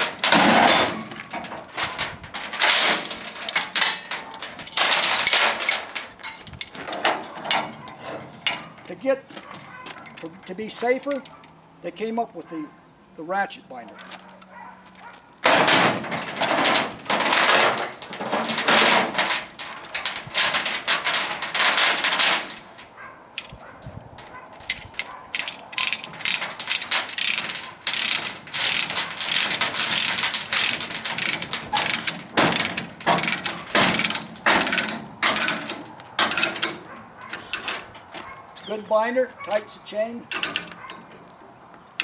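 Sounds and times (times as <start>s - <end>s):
ratchet pawl clicking: 27.2s - 33.4s.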